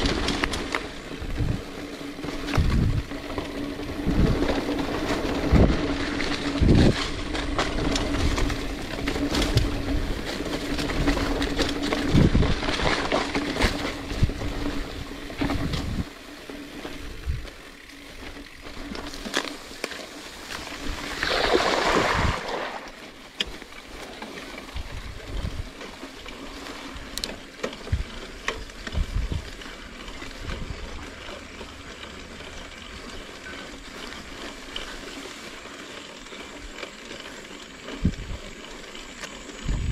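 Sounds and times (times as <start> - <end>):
wind buffeting microphone: 0.0 - 16.2, 17.0 - 17.6, 20.8 - 22.8, 24.7 - 25.8, 28.8 - 29.7, 38.0 - 38.6, 39.6 - 39.9
bike rattling and knocking: 0.0 - 39.9
bike tyres rumbling on dirt: 0.0 - 39.9
grass swishing against bike: 0.0 - 39.9.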